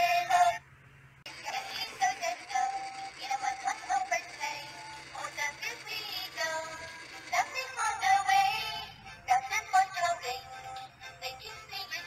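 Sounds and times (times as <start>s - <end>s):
electronic toy melody: 1.3s - 12.0s.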